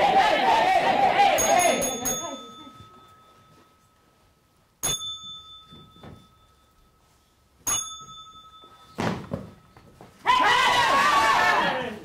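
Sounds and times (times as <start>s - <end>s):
small bell ringing: 1.4s - 10.0s.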